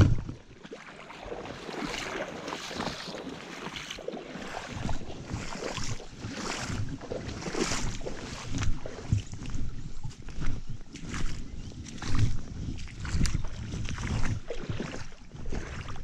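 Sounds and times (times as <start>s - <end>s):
footsteps crunching on bank: 0.0s - 16.0s
shallow water running: 0.4s - 9.4s.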